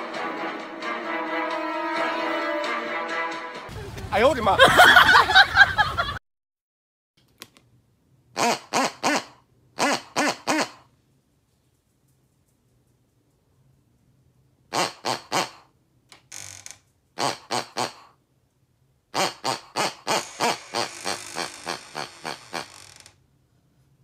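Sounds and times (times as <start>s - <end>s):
rubber squeaky toy squeaking: 8.4s - 10.8s, 17.2s - 18.1s, 19.2s - 23.0s
short airy hiss: 20.1s - 21.8s.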